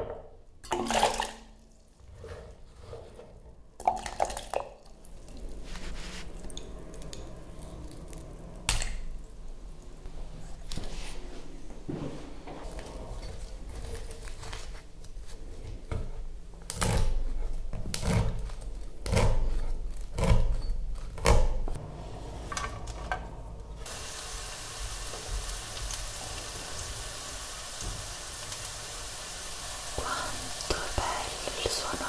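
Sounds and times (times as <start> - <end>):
onion sizzling in a frying pan: 23.8 - 31.5.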